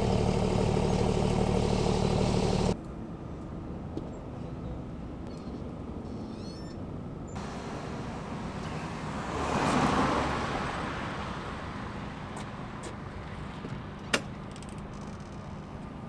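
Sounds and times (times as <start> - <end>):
traffic hum: 0.0 - 16.0
car passing: 7.4 - 14.0.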